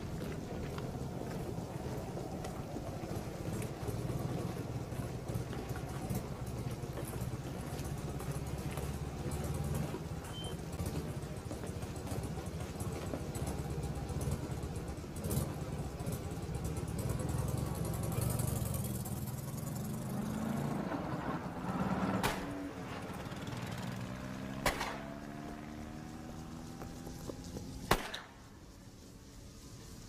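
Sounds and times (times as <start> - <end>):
motorcycle engine revving: 2.5 - 27.9
sharp cracks: 22.1 - 22.9, 24.5 - 25.5, 27.8 - 28.6.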